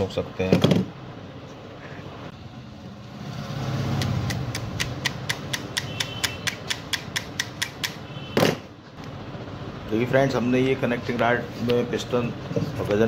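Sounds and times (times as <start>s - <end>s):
pliers tapping metal: 4.3s - 8.0s.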